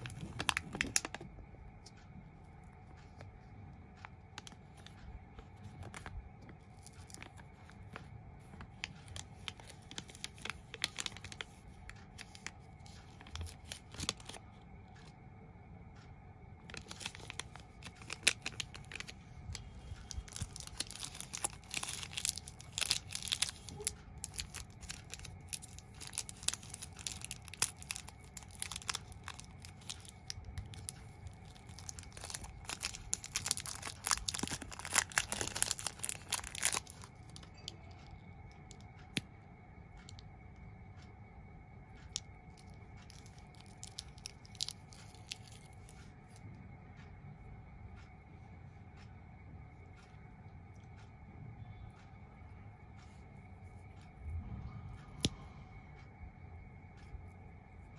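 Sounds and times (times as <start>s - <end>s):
candy wrappers crinkling: 0.0s - 1.2s, 4.4s - 15.1s, 16.6s - 37.8s, 42.1s - 46.0s
wrapper tearing open: 0.0s - 1.2s, 16.7s - 19.1s, 20.1s - 37.4s, 43.1s - 45.6s.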